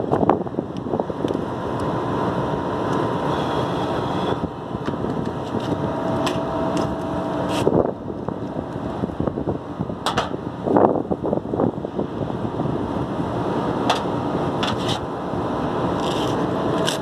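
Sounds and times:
wind on microphone: 0.0s - 17.0s.

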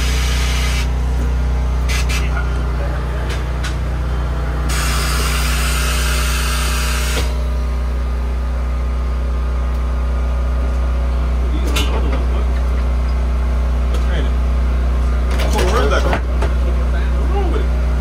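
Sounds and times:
low machine hum: 0.0s - 18.0s
compressed air hiss: 4.7s - 7.3s.

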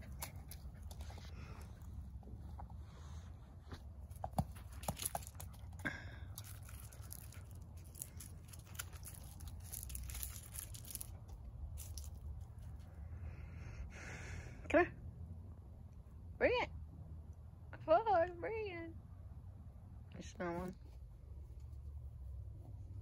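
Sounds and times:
dog chewing and tearing: 0.0s - 1.5s
low steady hum: 0.0s - 23.0s.

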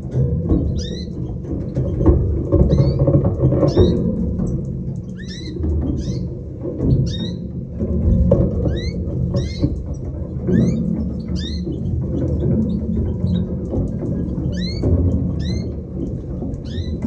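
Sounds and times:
finches chirping: 7.0s - 7.4s, 10.5s - 13.4s, 14.2s - 15.7s, 16.6s - 17.0s.

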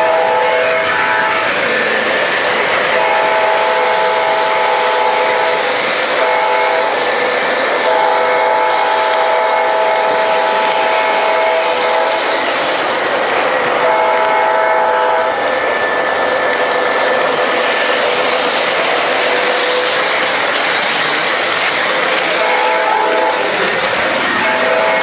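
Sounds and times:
train horn chord: 0.0s - 1.6s, 2.9s - 7.0s, 7.8s - 12.2s, 13.8s - 15.9s, 22.3s - 23.7s, 24.4s - 25.0s
model train rolling on track: 0.0s - 25.0s.

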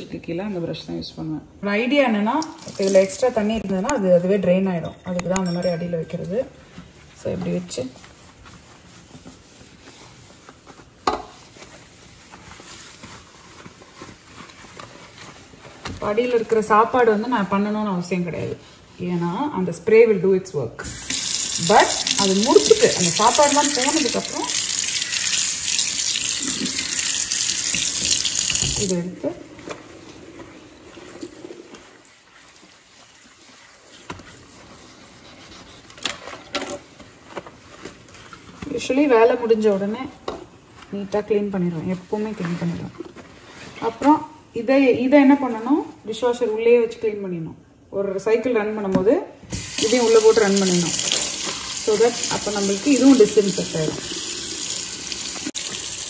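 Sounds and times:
sponge scrubbing a sink: 6.9s - 19.9s, 20.8s - 35.9s, 49.5s - 56.0s.

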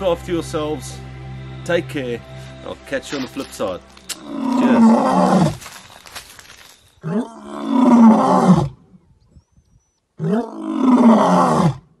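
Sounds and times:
lion roaring: 4.1s - 5.6s, 7.0s - 8.8s, 10.2s - 11.9s.

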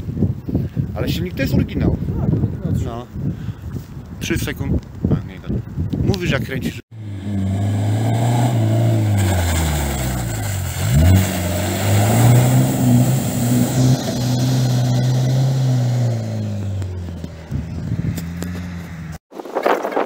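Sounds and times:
turbocharged engine under load: 6.9s - 19.2s.

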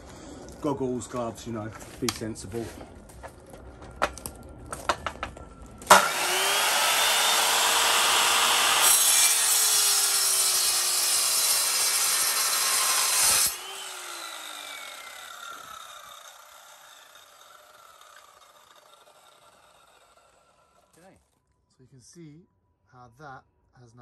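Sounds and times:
mitre saw motor whining: 5.9s - 20.9s.

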